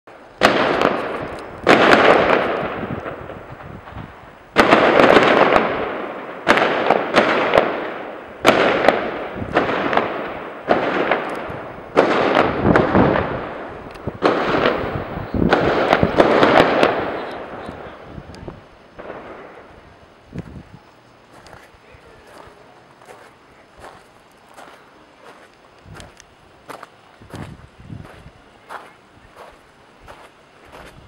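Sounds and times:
gunfire bursts echoing: 0.4 - 3.5, 4.6 - 18.0.

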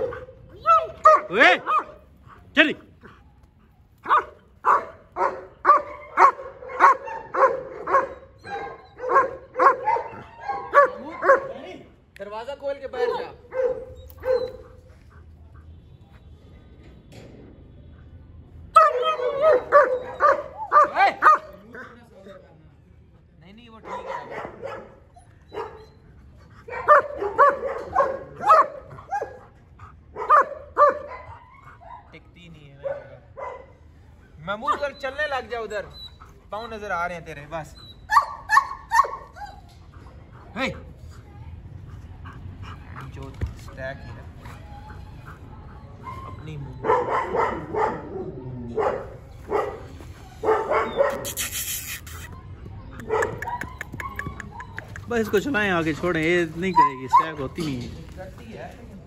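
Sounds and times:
dog barking: 0.0 - 2.0, 4.0 - 11.6, 13.0 - 14.8, 18.8 - 21.6, 23.8 - 26.0, 26.7 - 32.1, 32.8 - 33.9, 38.1 - 39.6, 45.7 - 51.4, 52.9 - 55.4, 56.8 - 57.6.

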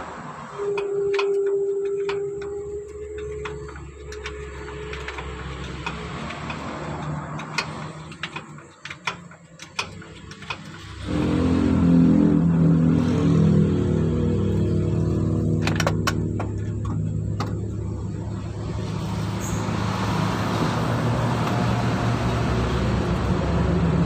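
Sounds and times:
low rumble: 11.1 - 24.0.

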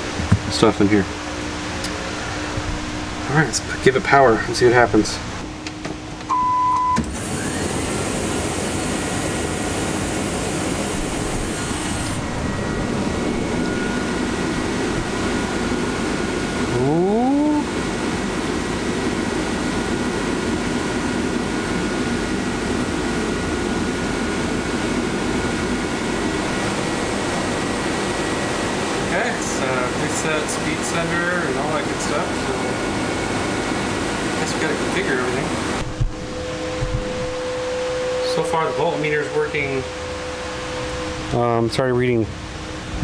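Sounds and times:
fan air noise: 0.0 - 43.0
brief rising whine: 1.2 - 17.9, 24.2 - 43.0
short beep: 6.3 - 7.0.

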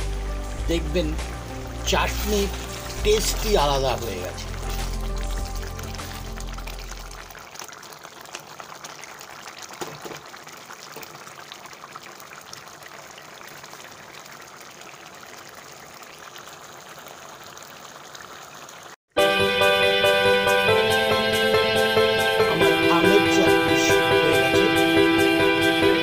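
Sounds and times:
music: 0.0 - 7.3, 19.2 - 26.0
chutney bubbling in a pan: 0.0 - 19.0.

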